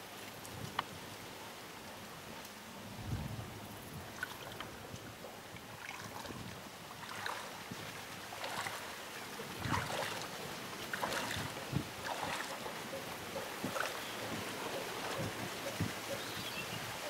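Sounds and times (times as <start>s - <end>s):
water splashing around wading legs: 4.0s - 16.3s.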